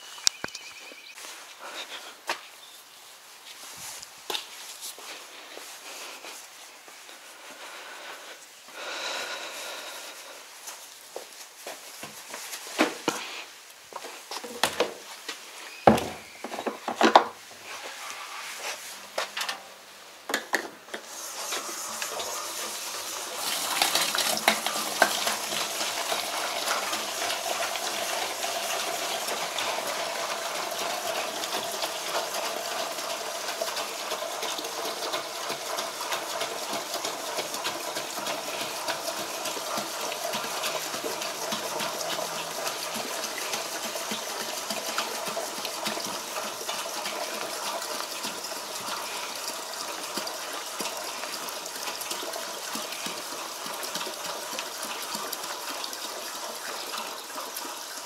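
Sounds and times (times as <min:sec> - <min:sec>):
fuel rushing into plastic can: 0:21.0 - 0:57.4.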